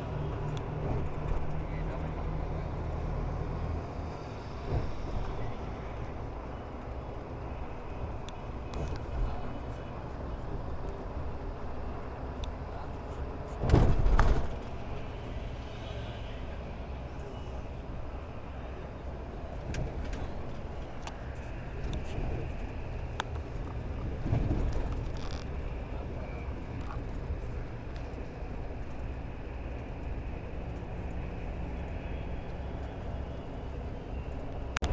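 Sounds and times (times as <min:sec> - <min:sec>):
vehicle running rumble: 0:00.0 - 0:34.9
vehicle bump: 0:13.5 - 0:14.8.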